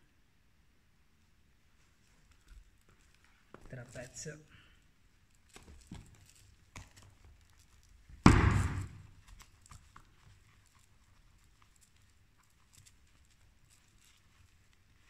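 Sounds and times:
loud thud: 8.2 - 9.1
webbing strap and buckle clicking: 9.0 - 14.8.

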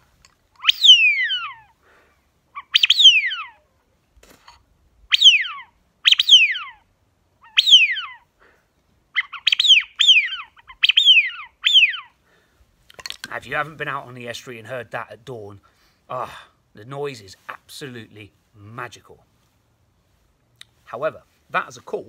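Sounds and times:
duck call whistles: 0.6 - 1.7, 2.6 - 3.6, 5.1 - 6.8, 7.4 - 8.2, 9.2 - 12.1.

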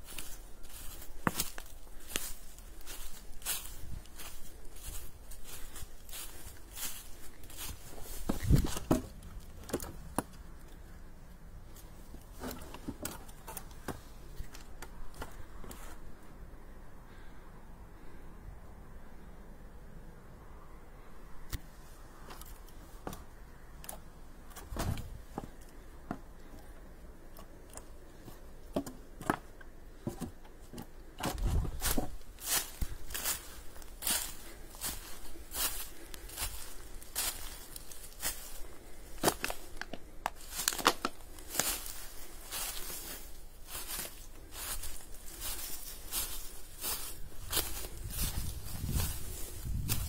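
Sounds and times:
footsteps crunching dry leaves: 0.0 - 10.7, 31.3 - 50.0
heavy thuds: 24.6 - 26.2.

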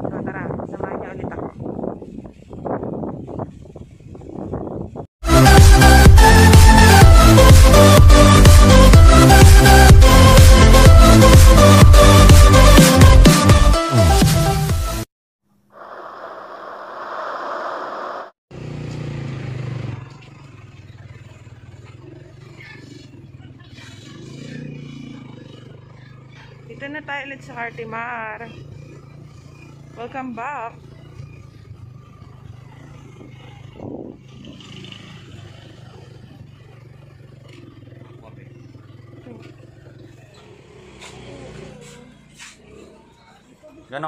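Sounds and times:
rushing wave-like sound effect: 15.8 - 18.4
traffic: 16.7 - 44.0
vehicle engine running: 18.5 - 43.6.

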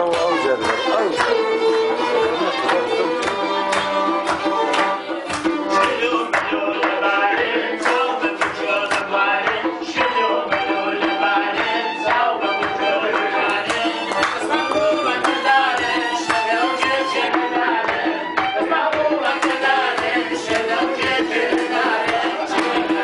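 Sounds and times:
accordion: 0.0 - 23.0
bowed fiddle: 0.0 - 23.0
group of men singing: 0.0 - 23.0
hand drum beat: 0.0 - 23.0.

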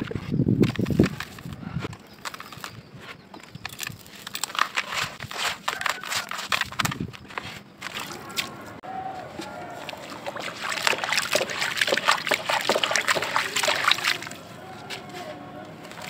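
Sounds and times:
hands crumbling dry soil: 0.0 - 16.0.

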